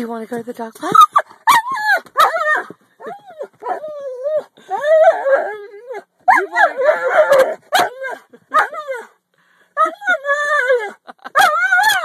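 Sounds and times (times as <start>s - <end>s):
dog whine-howling: 1.5s - 9.1s, 9.8s - 12.0s.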